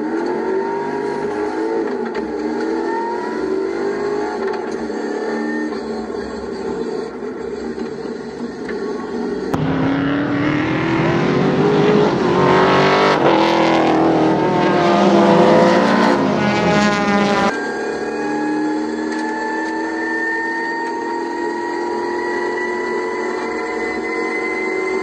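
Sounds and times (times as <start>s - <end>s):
race cars accelerating: 0.0s - 25.0s
car engine accelerating in cabin: 9.5s - 17.5s.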